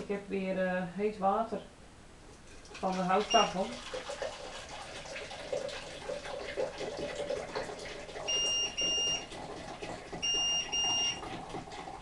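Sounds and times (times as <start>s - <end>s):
water pouring and splashing: 2.6s - 12.0s
hob touch control beeps: 8.3s - 9.2s, 10.2s - 11.2s.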